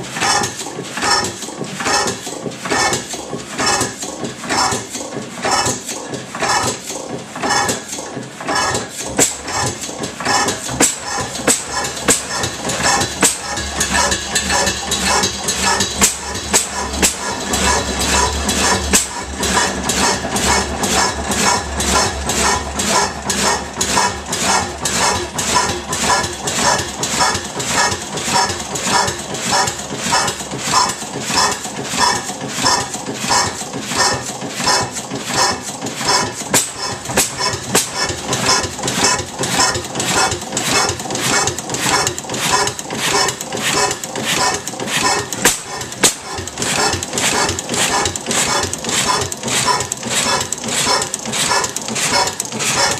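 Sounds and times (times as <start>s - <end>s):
gas engine clattering: 0.0s - 52.9s.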